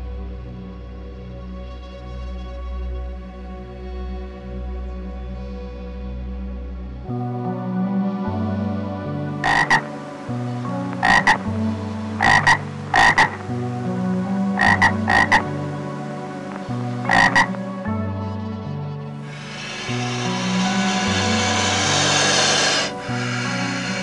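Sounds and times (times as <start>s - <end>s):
soft background music: 0.0s - 24.0s
frog croaking double calls: 9.4s - 10.0s, 10.9s - 11.5s, 12.2s - 13.6s, 14.5s - 15.6s, 16.5s - 17.6s, 19.3s - 24.0s.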